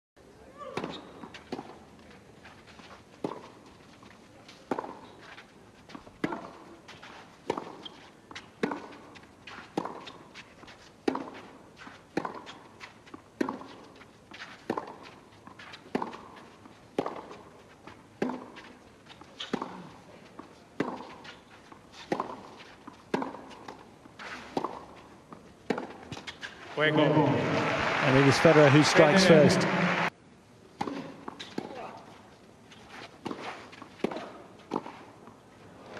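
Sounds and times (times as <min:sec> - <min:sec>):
tennis racket hitting ball: 0:06.0 - 0:17.5, 0:18.2 - 0:19.8, 0:20.8 - 0:26.5, 0:33.2 - 0:35.1.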